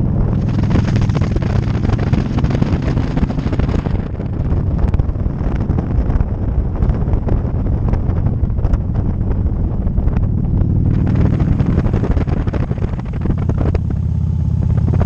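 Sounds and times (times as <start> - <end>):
motorcycle engine running: 0.0 - 15.0
wind buffeting microphone: 0.0 - 15.0.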